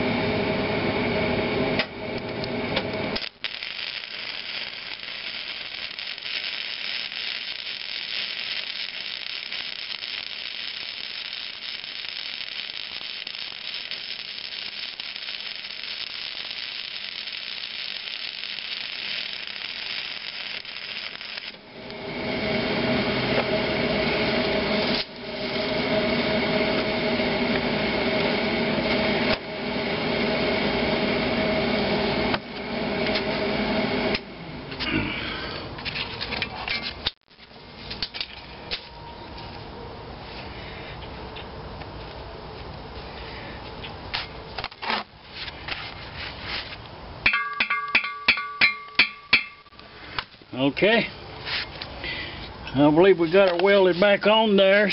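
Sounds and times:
steady hum with pitched tones: 0.0 - 36.2
welding arc crackling: 2.2 - 32.5, 46.7 - 52.0.

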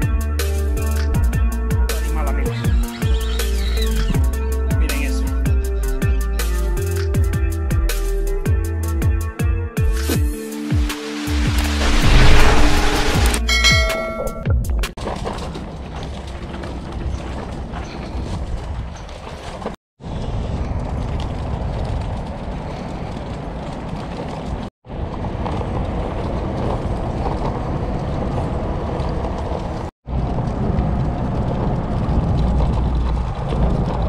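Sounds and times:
wagon wheels rumbling and rattling: 0.8 - 7.4, 14.7 - 34.0.

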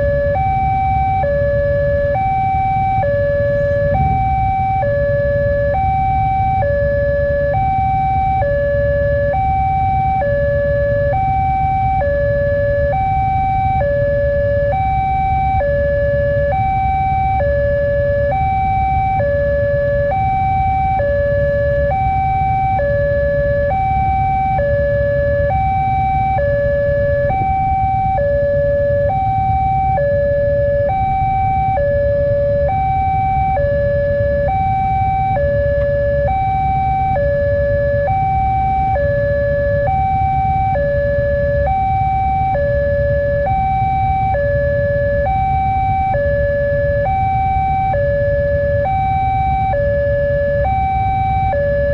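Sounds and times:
low traffic rumble: 0.0 - 51.9
two-tone crossing alarm: 0.0 - 51.9.

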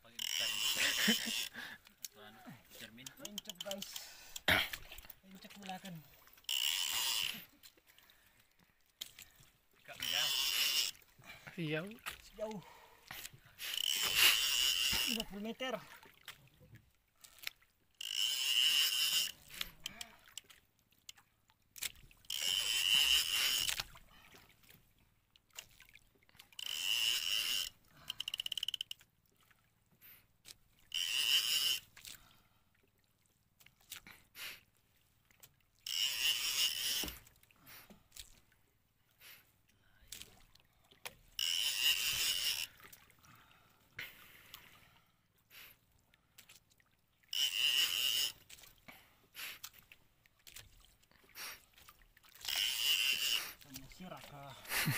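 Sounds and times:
fishing reel whirring: 0.0 - 1.6, 2.8 - 4.5, 6.4 - 7.5, 10.0 - 11.1, 13.6 - 15.3, 18.0 - 20.5, 22.2 - 23.9, 26.6 - 29.0, 30.9 - 31.9, 35.8 - 37.2, 41.4 - 42.9, 47.3 - 48.5, 52.3 - 53.6.

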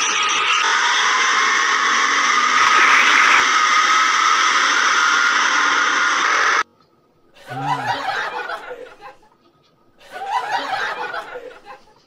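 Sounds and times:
loud steady noise: 0.6 - 6.6
bursts of laughter: 7.4 - 9.3, 10.0 - 12.0.

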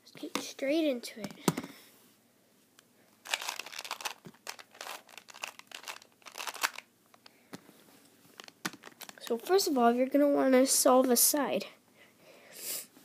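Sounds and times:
puzzle cube clicking and rattling: 3.2 - 7.3, 8.4 - 9.2.

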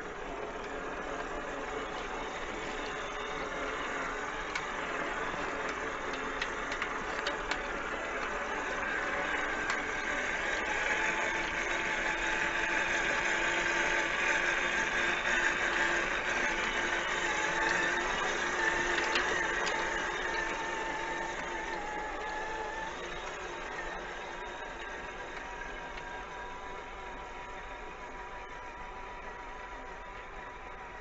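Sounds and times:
toy truck motor running: 0.0 - 31.0
small clicks: 2.4 - 12.6.

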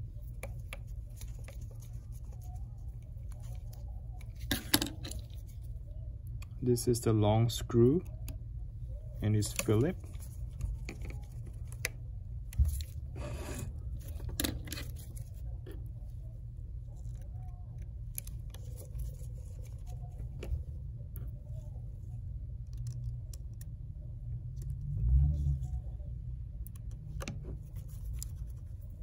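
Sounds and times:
gloved hands handling phone: 0.0 - 6.6, 9.0 - 21.8
steady low hum: 0.0 - 29.0.

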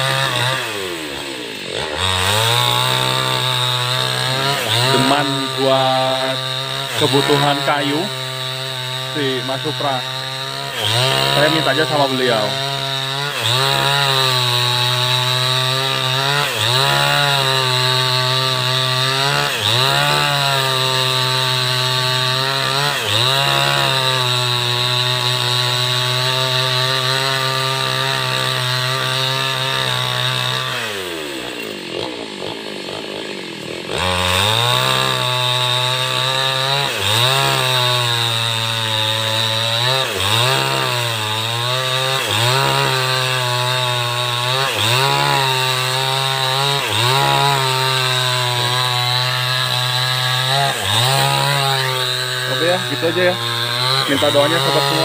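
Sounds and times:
chainsaw cutting wood: 0.0 - 55.0
chainsaw idling: 0.0 - 55.0.

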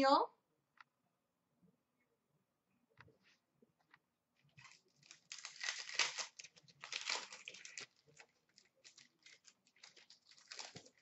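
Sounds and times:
wrapper tearing and crinkling: 4.5 - 11.0.

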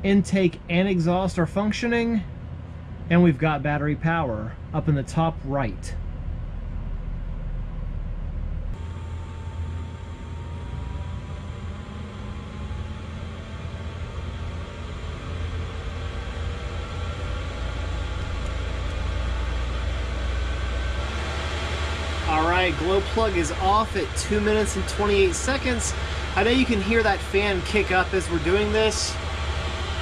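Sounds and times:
faint rising whine: 0.0 - 30.0
heater fan humming: 0.0 - 30.0
rushing air: 19.8 - 30.0.

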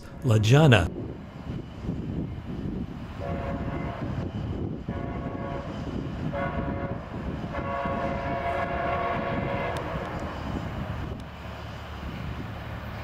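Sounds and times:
locomotive horn blasts: 3.2 - 4.1, 4.9 - 10.1.

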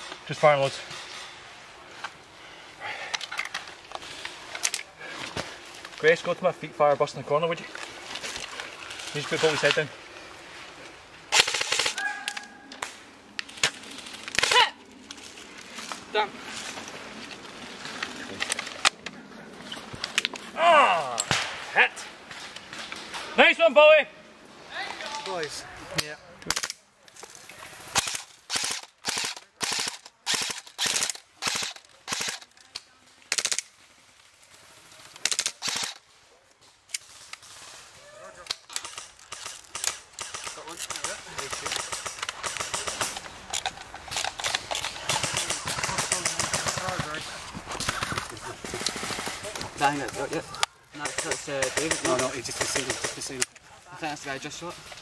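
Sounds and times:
airsoft rifle full-auto bursts: 11.3 - 12.0, 28.0 - 32.5, 35.3 - 36.0, 45.0 - 47.2
airsoft rifle firing: 11.3 - 12.4, 28.0 - 32.5, 35.2 - 36.0, 38.7 - 43.2, 44.4 - 50.2
person shouting: 14.4 - 14.8, 20.6 - 21.2.

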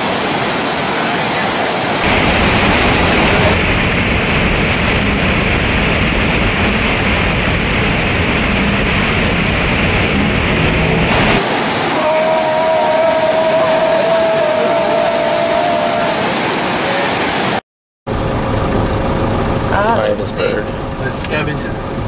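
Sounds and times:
white water rushing over rocks: 0.0 - 3.6, 11.1 - 17.6.

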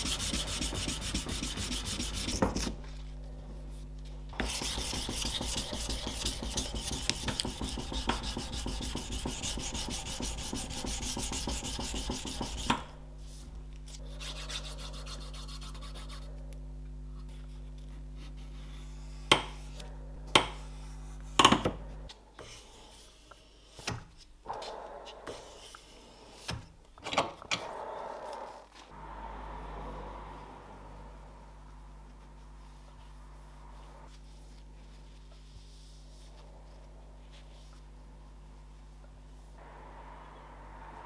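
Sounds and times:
sandpaper rubbing on wood: 0.0 - 2.7, 4.4 - 12.8, 14.0 - 16.3
steady low hum: 0.0 - 41.0.

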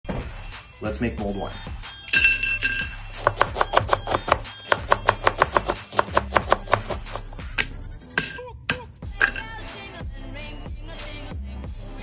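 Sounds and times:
knife chopping on cutting board: 3.2 - 7.8.

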